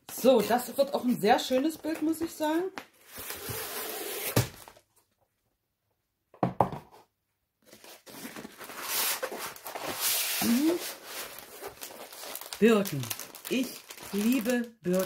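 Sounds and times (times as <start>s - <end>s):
knocks on desk: 6.4s - 6.9s
plastic film crinkling: 7.6s - 15.0s.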